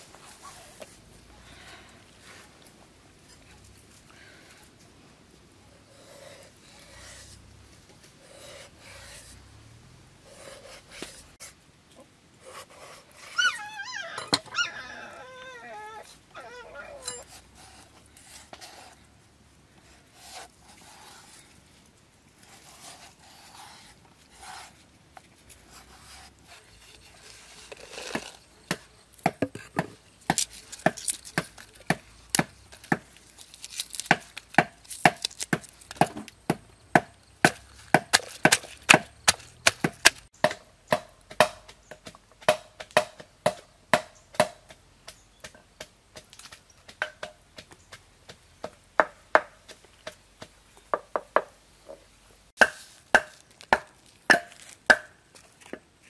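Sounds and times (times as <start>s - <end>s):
pestle pounding in wooden mortar: 33.9s - 44.8s.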